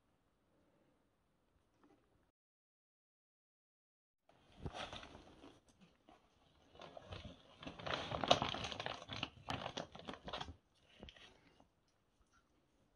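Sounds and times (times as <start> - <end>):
plastic bag crinkling: 6.5 - 11.4.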